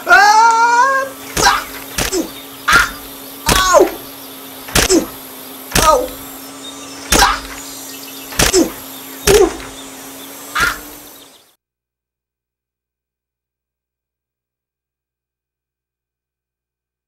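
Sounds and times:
steady low buzz: 0:00.0 - 0:11.6
sharp knock: 0:05.7 - 0:06.1, 0:08.4 - 0:09.7.

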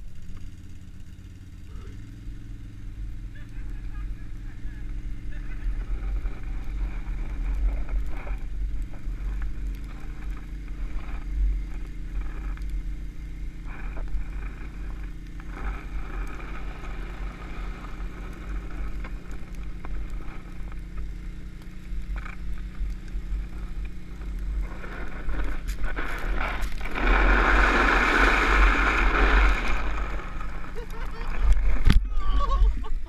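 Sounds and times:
atv engine running: 0:00.0 - 0:33.0
low rumble: 0:00.0 - 0:33.0
plastic lid scraping on snow: 0:13.7 - 0:20.5, 0:24.5 - 0:32.0.

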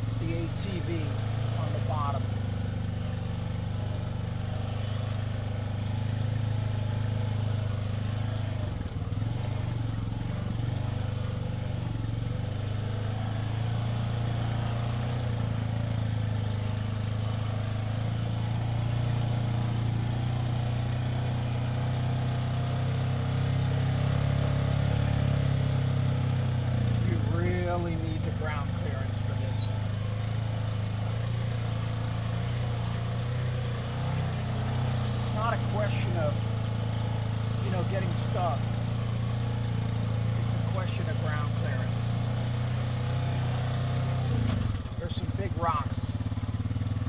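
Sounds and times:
vehicle engine running: 0:00.0 - 0:47.0.

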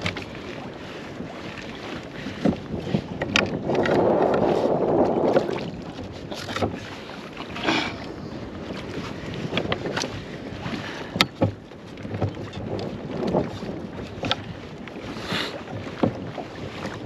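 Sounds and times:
water noise: 0:00.0 - 0:17.0
wind noise: 0:01.3 - 0:17.0
knocks and clicks of handling: 0:03.2 - 0:04.4, 0:11.1 - 0:13.4.

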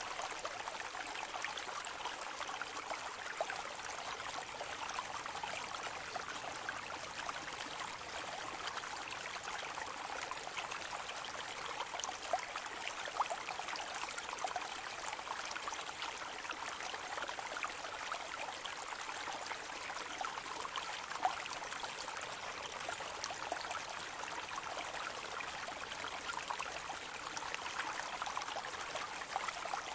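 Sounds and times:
rushing water: 0:00.0 - 0:16.4.

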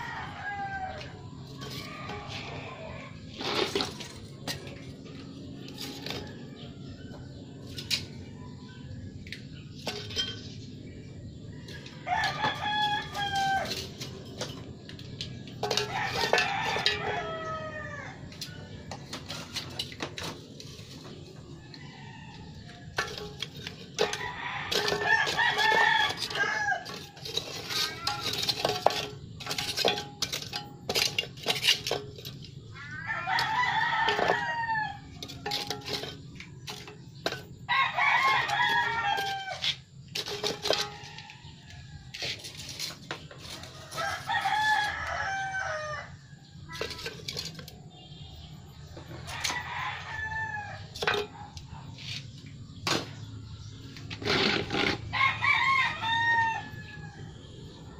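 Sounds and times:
rooster crowing: 0:00.0 - 0:03.1, 0:11.6 - 0:13.9, 0:15.7 - 0:18.2, 0:24.0 - 0:28.3, 0:32.7 - 0:35.5, 0:37.7 - 0:39.7, 0:43.6 - 0:46.2, 0:49.2 - 0:51.0, 0:55.0 - 0:57.5.

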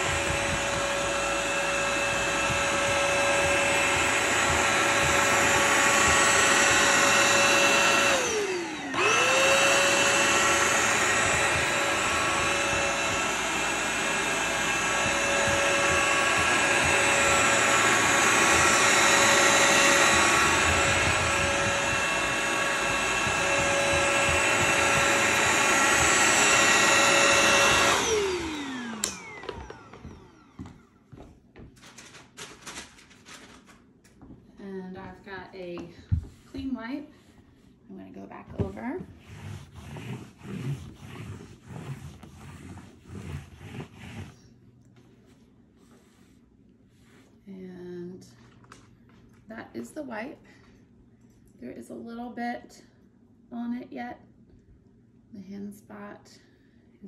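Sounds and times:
vacuum cleaner motor whine: 0:00.0 - 0:31.3.

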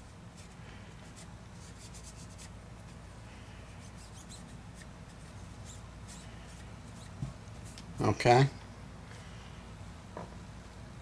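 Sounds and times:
low steady hum: 0:00.0 - 0:11.0
cloth scratching and rustling: 0:03.8 - 0:07.8.

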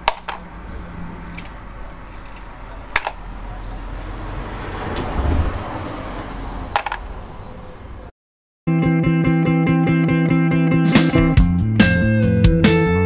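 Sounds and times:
handling noise: 0:00.0 - 0:00.6, 0:01.3 - 0:03.3, 0:06.7 - 0:07.1.

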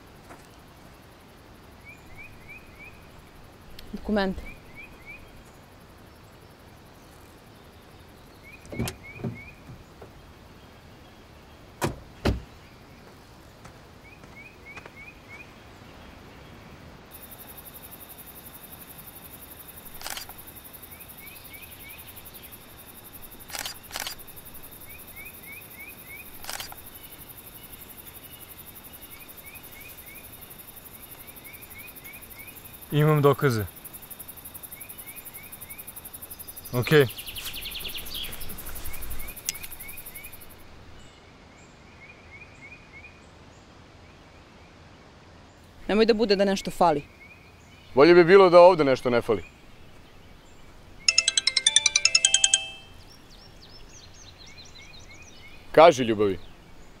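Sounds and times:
high hiss with thin tone: 0:16.0 - 0:41.1.

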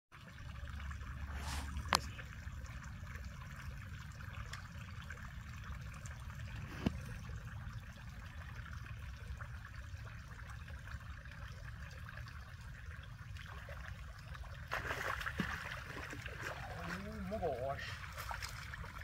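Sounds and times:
fish splashing in water: 0:13.6 - 0:19.0.

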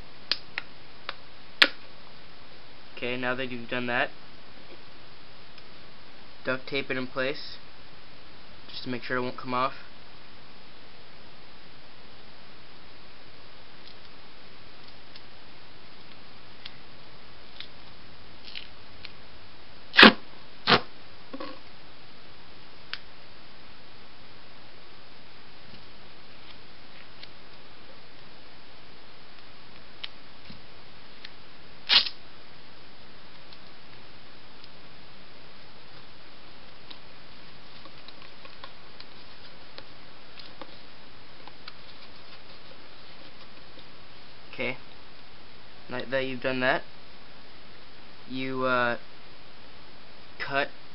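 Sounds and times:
steady hiss: 0:00.0 - 0:50.9
duct tape ripping off roll: 0:19.9 - 0:20.9, 0:31.8 - 0:32.2.

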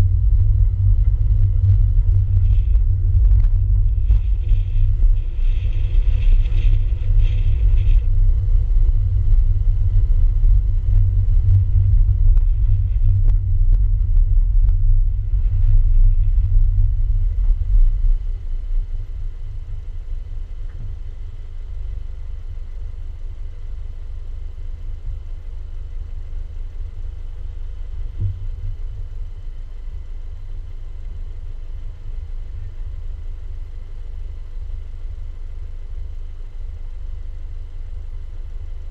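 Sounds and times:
wind on microphone: 0:00.0 - 0:19.6
car rumbling slowly: 0:00.0 - 0:38.9.

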